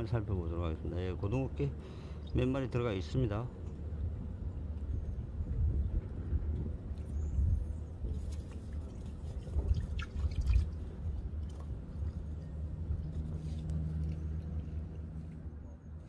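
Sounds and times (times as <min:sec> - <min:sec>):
low uneven rumble: 0:00.0 - 0:16.0
steady low hum: 0:00.0 - 0:16.0
light drips and ticks: 0:03.4 - 0:15.5.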